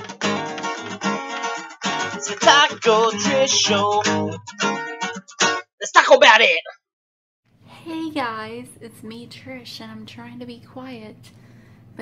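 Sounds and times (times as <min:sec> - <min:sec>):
acoustic guitar jingle: 0:00.0 - 0:05.7
person singing: 0:02.1 - 0:04.4.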